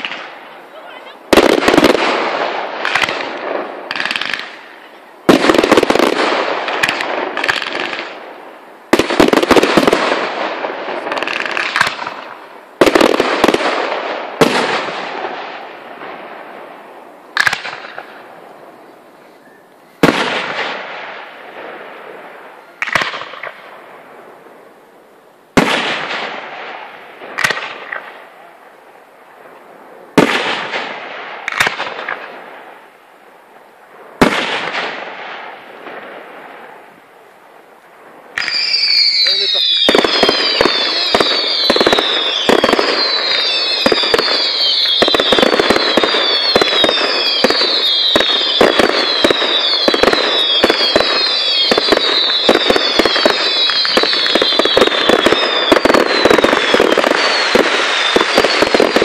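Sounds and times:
firework shells bursting: 17.3 - 18.3, 38.3 - 59.0.

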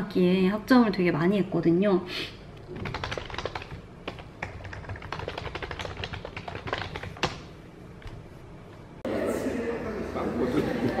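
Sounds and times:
computer keyboard typing clicks: 2.7 - 7.4.

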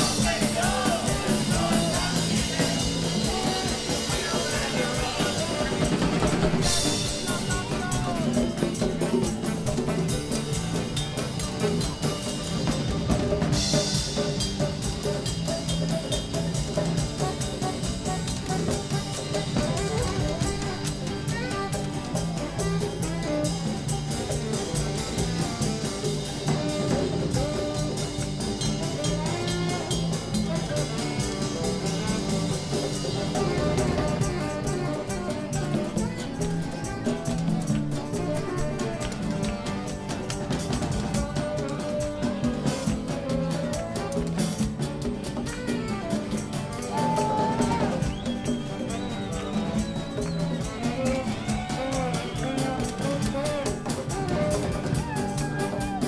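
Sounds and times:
live band jamming: 0.0 - 56.0.

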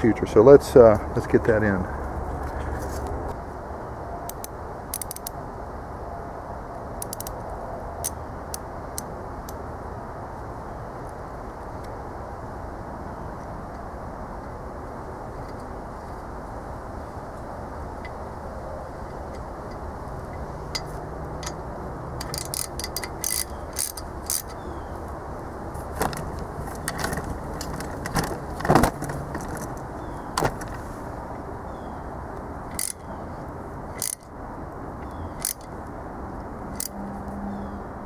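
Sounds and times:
metal parts and tools clinking: 19.7 - 21.6, 22.2 - 24.6, 26.0 - 29.8, 32.7 - 33.1, 34.0 - 34.3.

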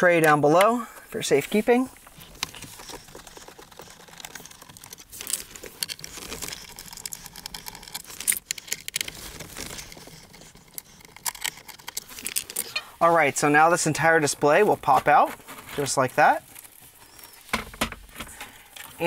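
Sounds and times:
metal and plastic parts clicking: 2.3 - 12.9.

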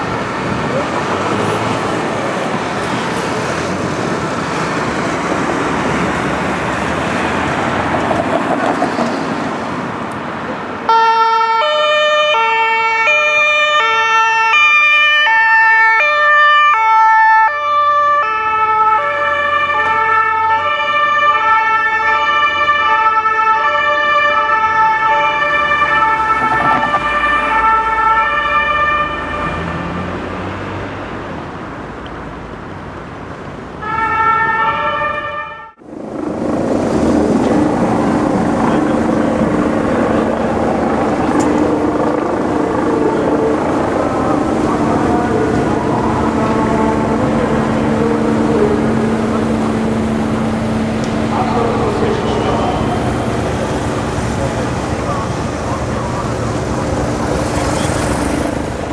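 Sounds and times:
traffic noise: 0.0 - 58.9
two-tone police siren: 10.9 - 30.2, 33.8 - 36.5, 37.1 - 58.4.

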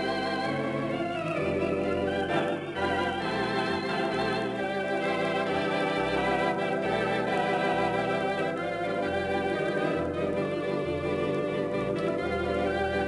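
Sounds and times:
bass line: 0.0 - 13.0
theatre organ chords: 0.0 - 13.0.

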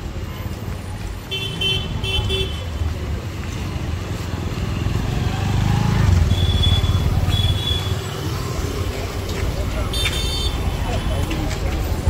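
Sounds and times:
motorcycle and car engines passing: 1.9 - 9.9.

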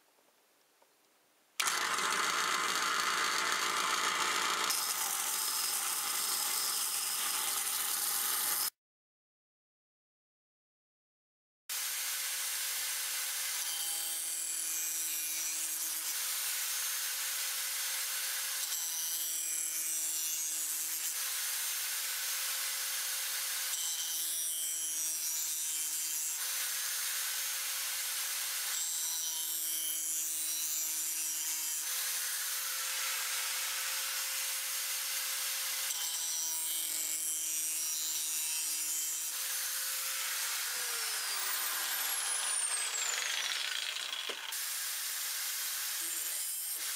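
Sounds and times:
grinder grinding a knife blade: 1.6 - 8.7, 11.7 - 46.9.

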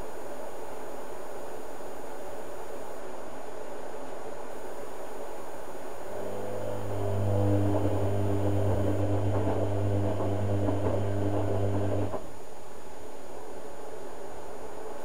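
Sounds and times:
washing machine motor hum: 6.0 - 12.3
laundry churning in drum: 6.2 - 12.2.

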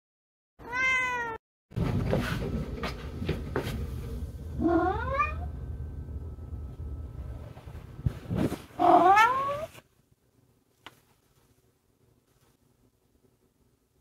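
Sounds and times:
cat meowing: 0.6 - 1.4, 4.6 - 5.5, 8.8 - 9.8.

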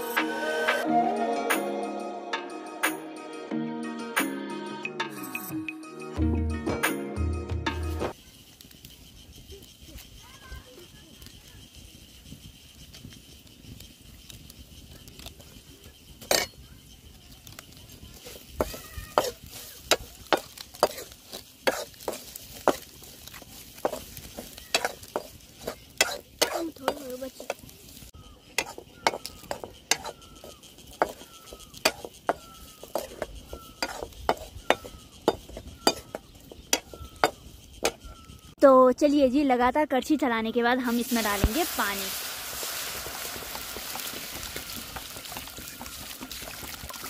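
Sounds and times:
low frying sizzle: 7.8 - 47.0
metal ladle scraping pan: 19.1 - 27.5, 28.5 - 38.0.

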